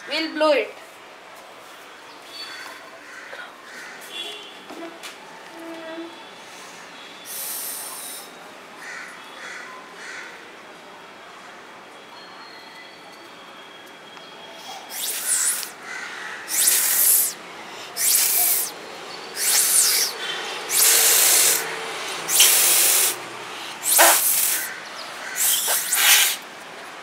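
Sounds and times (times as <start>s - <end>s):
breath blown through straw sprayer: 14.8s - 15.7s, 16.5s - 18.8s, 19.4s - 24.8s, 25.4s - 26.4s.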